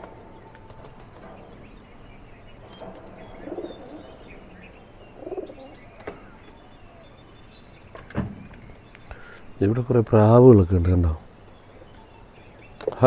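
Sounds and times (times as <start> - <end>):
pigeons cooing: 0.0 - 7.2
small birds chirping: 0.0 - 13.0.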